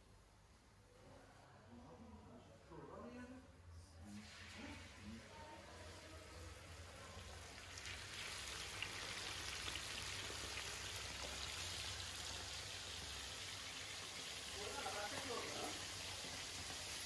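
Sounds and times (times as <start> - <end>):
food sizzling in hot oil: 4.2 - 17.0.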